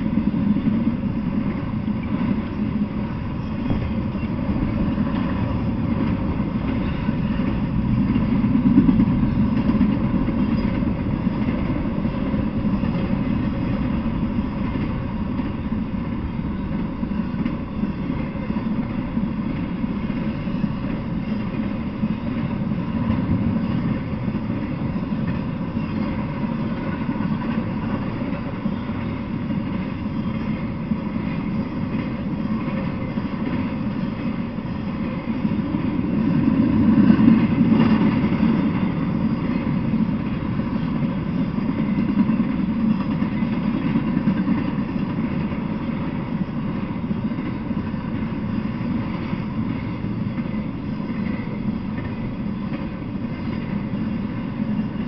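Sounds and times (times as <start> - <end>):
train wheels rumbling on track: 0.0 - 55.0.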